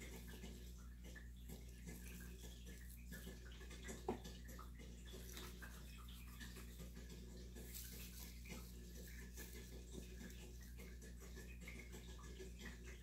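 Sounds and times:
dried herb flakes rustling: 5.2 - 10.6.

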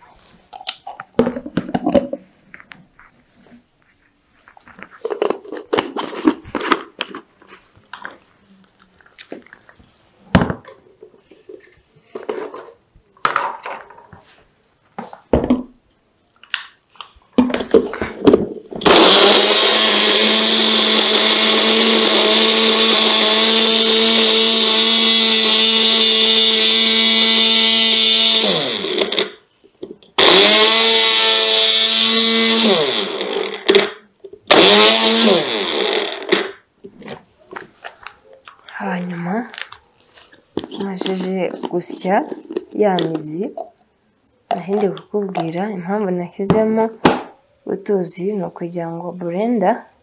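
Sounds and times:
blender grinding: 18.8 - 29.4, 30.2 - 36.6.

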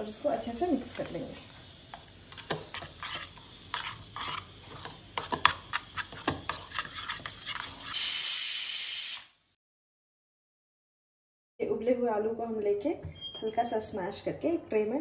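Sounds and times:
spoon stirring in a bowl: 1.9 - 8.0
pressure cooker steam hissing: 7.8 - 9.4.

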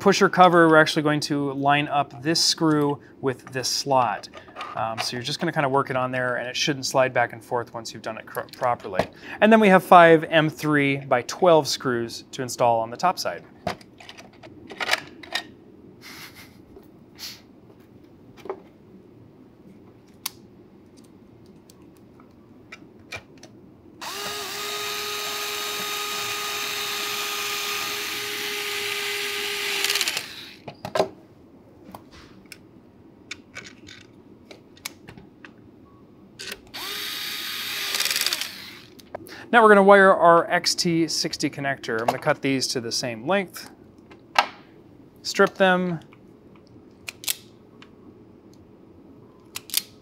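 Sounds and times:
electric screwdriver driving screws: 24.0 - 30.6, 36.7 - 39.0.

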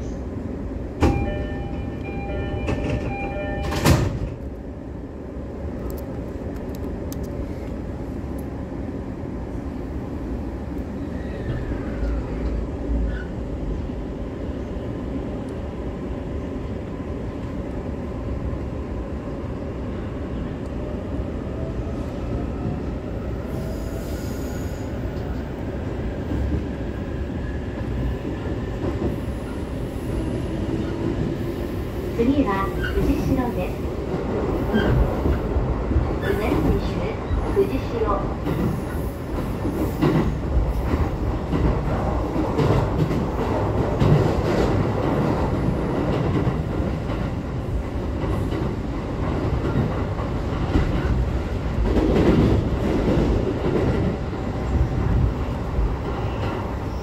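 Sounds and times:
train rolling rumble: 0.0 - 57.0
chiming door-closing signal: 1.0 - 4.2.

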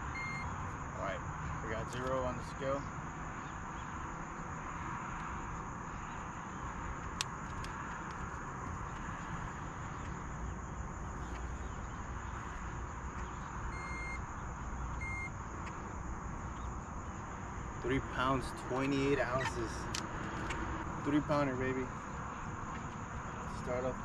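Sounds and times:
short high beeps: 0.0 - 0.5, 13.7 - 14.2, 15.0 - 15.3
outdoor background hiss: 0.0 - 24.0.

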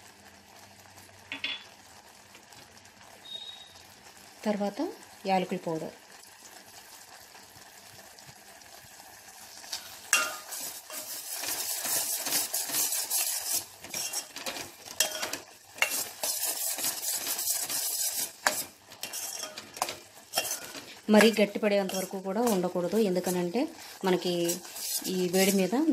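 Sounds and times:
light sizzle: 0.0 - 25.9
ladle scraping steel pot: 10.2 - 25.8.

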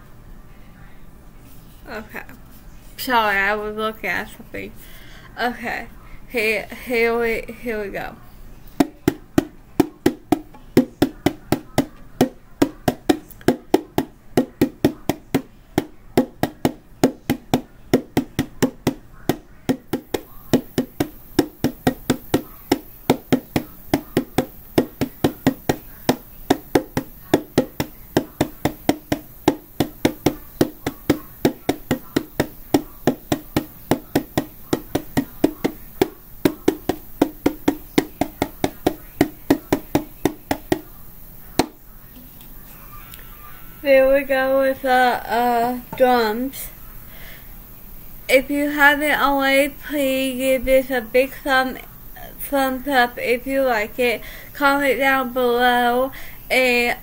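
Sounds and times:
hand drum struck with open hand: 8.8 - 40.9, 41.6 - 41.8.

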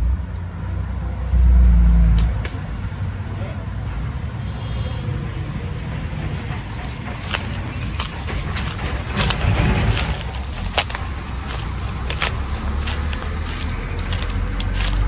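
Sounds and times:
footsteps in dry leaves: 7.2 - 15.0.

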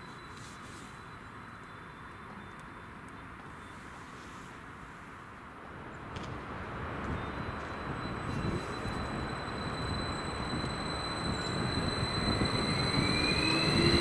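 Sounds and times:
electric train approaching: 6.4 - 14.0.

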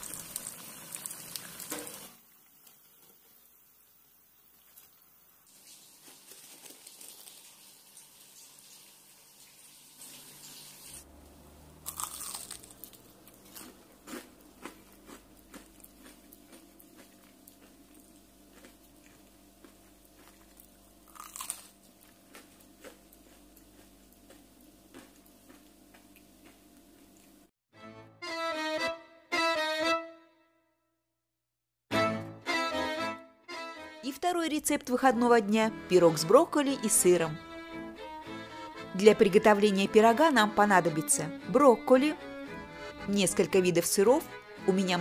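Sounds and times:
fried food crunching: 4.5 - 8.5, 11.8 - 27.4.

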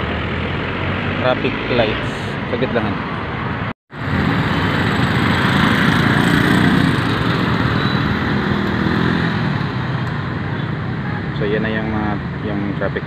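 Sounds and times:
cars passing: 0.0 - 13.0
small motorcycle engines running: 4.0 - 13.0.

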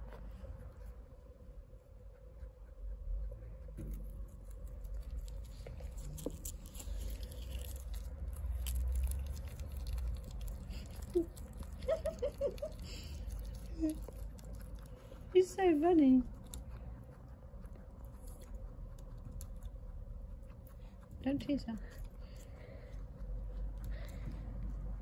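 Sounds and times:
low rumble: 0.0 - 15.3, 16.2 - 25.0
rustling near a cage: 3.6 - 15.8.

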